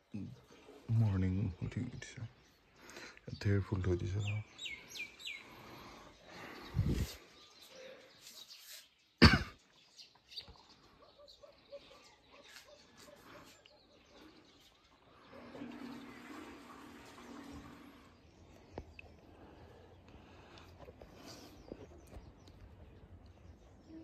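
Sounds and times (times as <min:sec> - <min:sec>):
birds chirping: 0:00.0 - 0:24.0
person coughing: 0:09.2 - 0:09.7.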